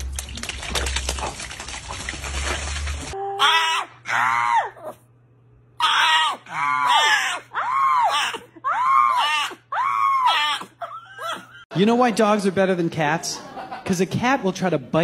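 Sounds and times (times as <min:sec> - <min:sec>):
small dog howling: 0:03.2 - 0:05.0, 0:05.8 - 0:11.5.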